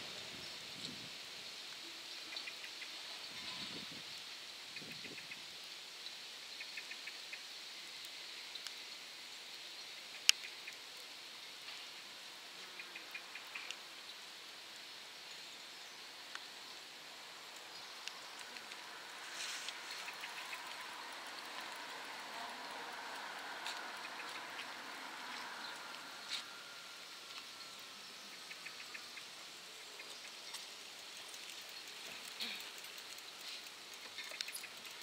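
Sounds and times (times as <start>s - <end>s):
light rain hissing: 0.0s - 35.0s
raindrops ticking: 17.4s - 26.1s, 30.0s - 35.0s.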